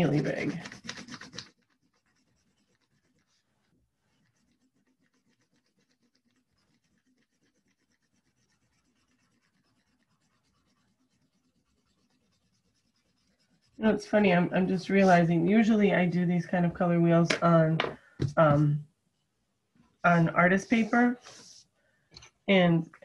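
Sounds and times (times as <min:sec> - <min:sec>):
pencil scratching on paper: 0:00.0 - 0:15.6, 0:20.1 - 0:21.7.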